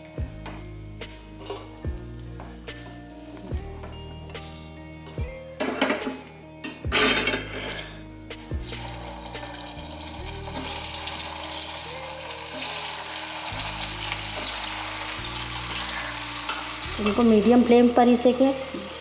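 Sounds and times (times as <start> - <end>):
food deep-frying in hot oil: 8.6 - 19.0.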